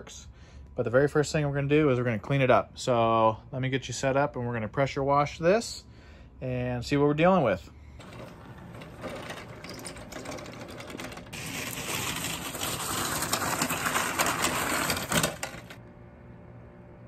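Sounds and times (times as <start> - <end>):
wheels rolling over concrete: 8.0 - 15.8.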